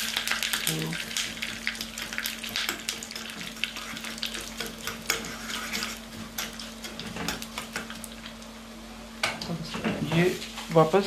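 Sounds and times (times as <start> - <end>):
seeds sizzling and popping in oil: 0.0 - 8.6
spoon stirring in pan: 1.2 - 8.3.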